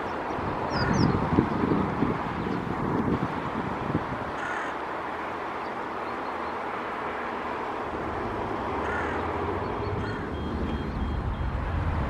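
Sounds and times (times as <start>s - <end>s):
steady background rush: 0.0s - 12.0s
crow cawing: 4.4s - 4.8s, 8.8s - 9.3s, 10.0s - 10.4s.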